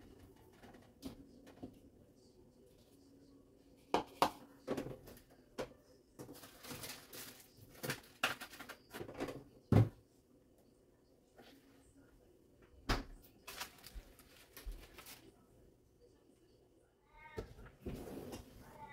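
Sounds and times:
plastic packaging rustling: 6.2 - 9.0, 13.4 - 15.4.

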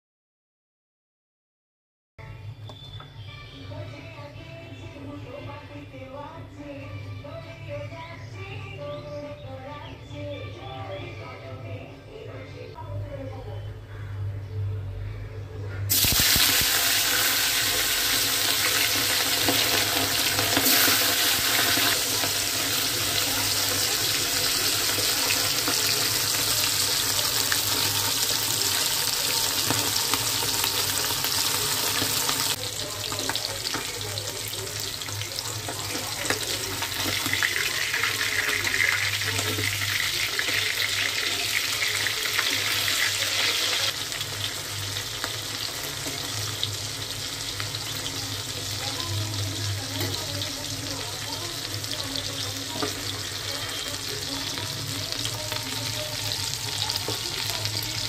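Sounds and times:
fish sizzling in hot oil: 15.9 - 58.0.

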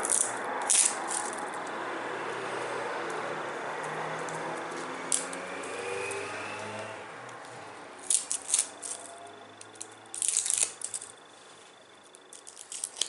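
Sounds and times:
garlic skin crackling: 0.0 - 1.6, 7.4 - 13.0.

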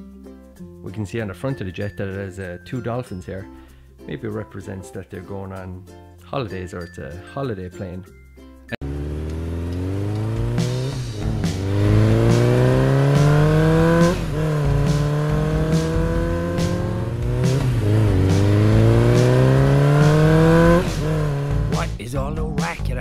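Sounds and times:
dirt bike engine accelerating: 8.8 - 22.0.

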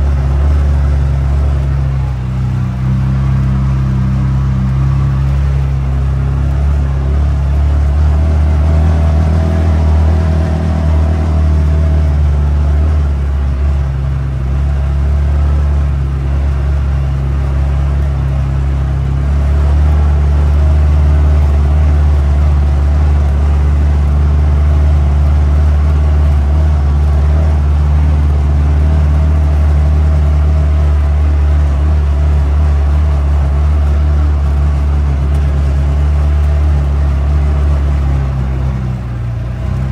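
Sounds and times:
vehicle engine droning: 0.0 - 39.9.

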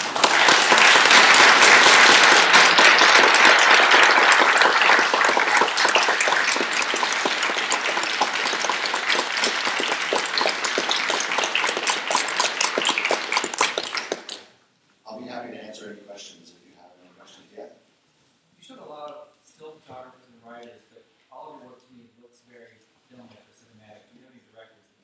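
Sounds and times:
audience applauding: 0.0 - 14.5.

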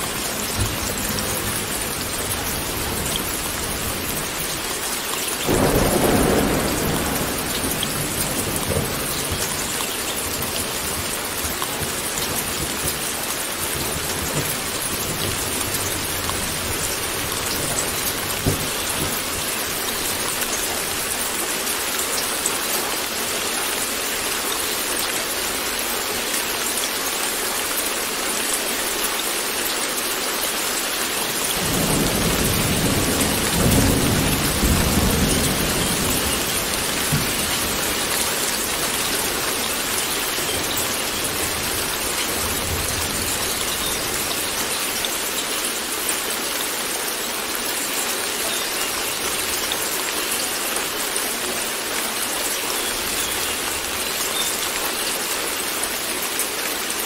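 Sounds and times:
heavy rain pouring: 0.0 - 57.0
thunder booming: 5.5 - 9.5.

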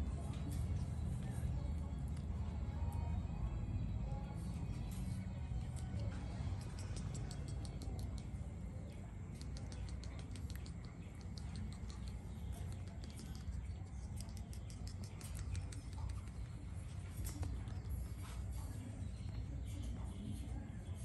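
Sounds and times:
low steady rumble: 0.0 - 21.0
claws tapping on wire pen: 4.9 - 8.4, 9.3 - 17.9.

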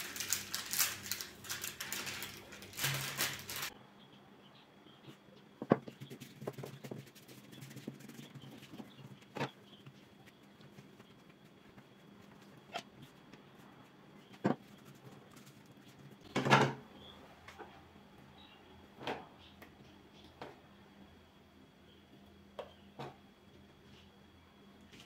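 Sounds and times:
pastry sheets rustling: 0.0 - 3.8.

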